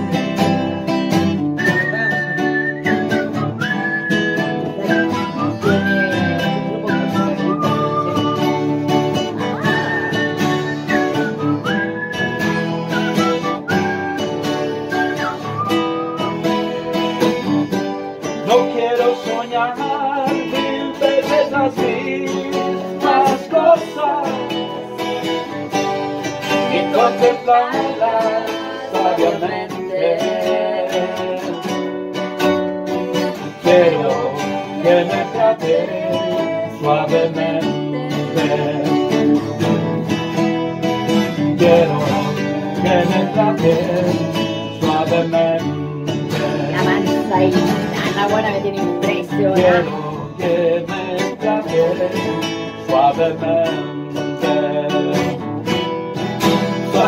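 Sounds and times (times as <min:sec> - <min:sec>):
nylon-string guitar plucking: 0:00.0 - 0:57.0.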